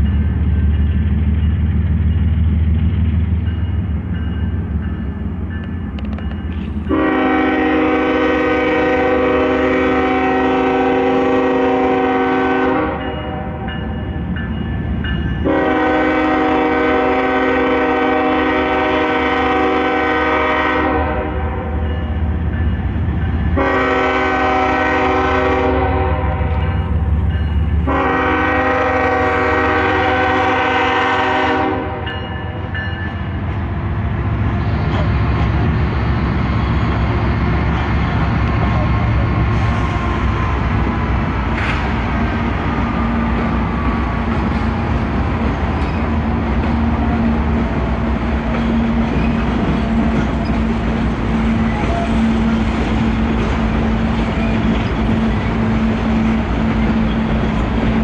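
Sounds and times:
diesel engines rumbling: 0:00.0 - 0:58.0
locomotive air horn blasts: 0:06.9 - 0:13.6, 0:15.4 - 0:21.8, 0:23.5 - 0:26.6, 0:27.8 - 0:32.2.

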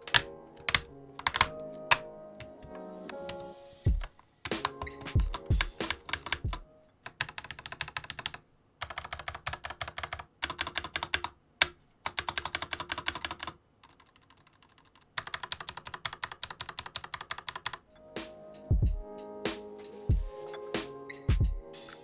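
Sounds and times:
plastic keyboard key clacks: 0:00.0 - 0:02.0.

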